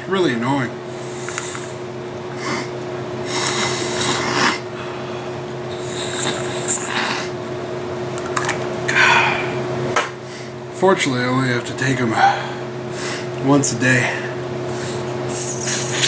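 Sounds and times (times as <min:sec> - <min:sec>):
steady low hum: 0:00.0 - 0:16.0
person sniffing through nose: 0:03.3 - 0:04.6, 0:14.7 - 0:16.0.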